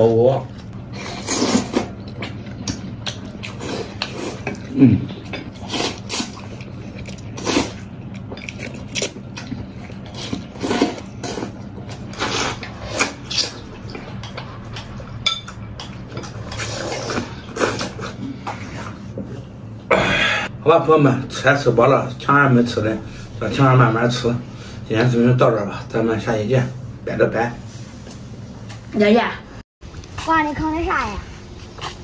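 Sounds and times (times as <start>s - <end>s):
slurping and chewing noodles: 0.5s - 15.0s, 15.9s - 19.4s, 31.3s - 32.0s.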